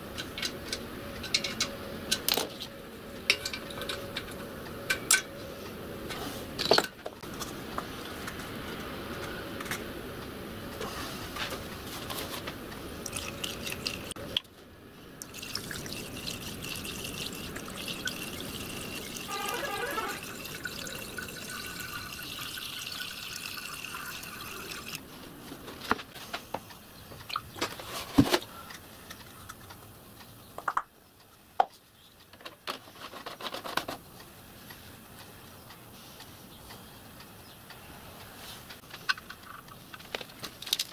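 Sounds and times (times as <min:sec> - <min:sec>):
water pouring through a funnel: 0:13.0 - 0:14.2, 0:15.2 - 0:25.0.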